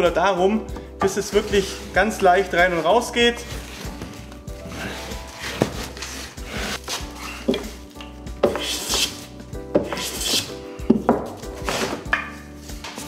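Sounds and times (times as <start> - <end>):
hand plane shaving wood: 1.2 - 7.8, 8.5 - 10.6, 11.6 - 12.0.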